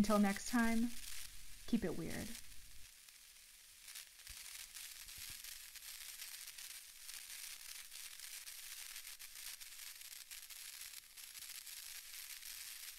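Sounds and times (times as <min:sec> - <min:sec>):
record surface hiss and crackle: 0:00.0 - 0:12.9.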